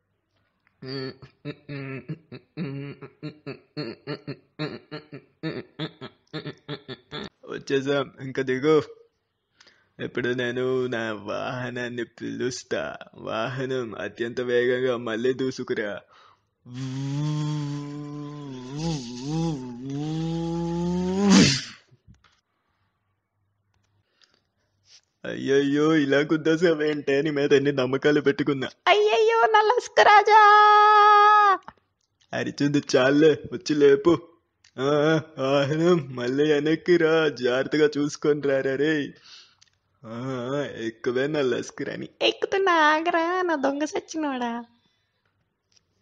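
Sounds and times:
man vocalising in clipped syllables: 0:00.8 - 0:07.5, 0:16.7 - 0:21.8.

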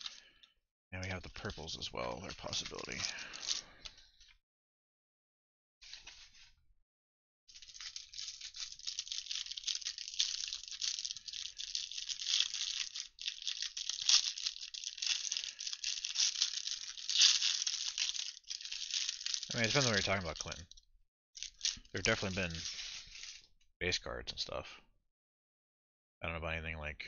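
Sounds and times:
cellophane wrap crinkling and tearing: 0:00.0 - 0:00.4, 0:02.2 - 0:03.7, 0:07.5 - 0:20.8, 0:21.4 - 0:23.5.

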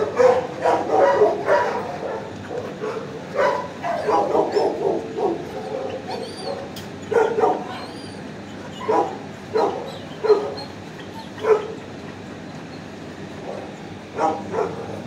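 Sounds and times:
dog barking: 0:00.0 - 0:08.0, 0:08.8 - 0:10.7, 0:11.4 - 0:11.8, 0:13.4 - 0:15.0.

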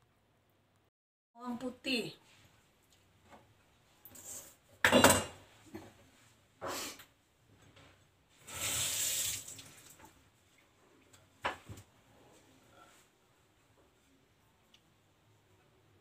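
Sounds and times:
kitchen tap running: 0:08.4 - 0:10.1.

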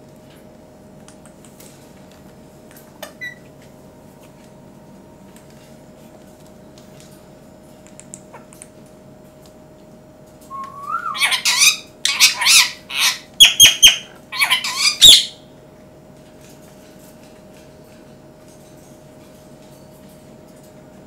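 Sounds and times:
parakeet rising whistle: 0:10.5 - 0:15.3
parakeet squawking and chattering: 0:10.6 - 0:15.4.

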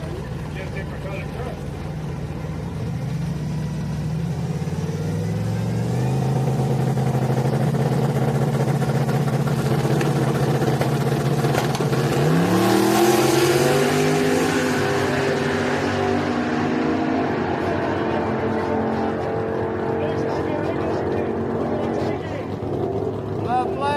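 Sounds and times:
truck engines rumbling and accelerating: 0:00.0 - 0:23.9.

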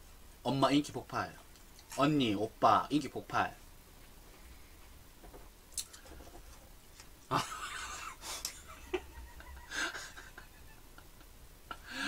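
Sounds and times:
stifled laughter: 0:07.3 - 0:12.0.

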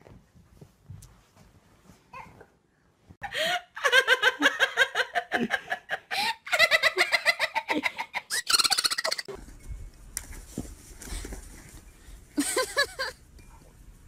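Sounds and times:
high-pitched laughter: 0:03.7 - 0:09.4, 0:12.4 - 0:13.2.

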